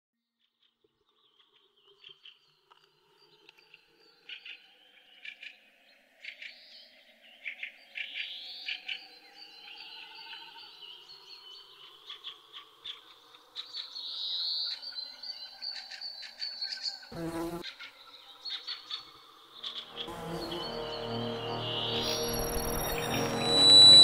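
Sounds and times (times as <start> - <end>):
insect trill: 21.6 - 24.0.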